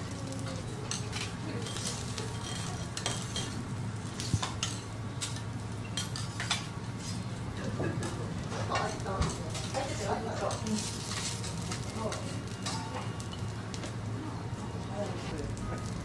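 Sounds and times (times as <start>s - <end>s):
meat and vegetables sizzling: 0.0s - 16.0s
spatula scraping steel griddle: 6.0s - 7.3s.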